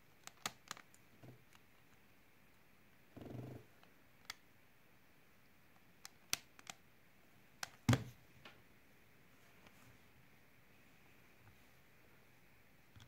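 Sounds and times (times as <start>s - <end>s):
plastic cube clicking: 0.2s - 1.6s, 6.0s - 6.8s.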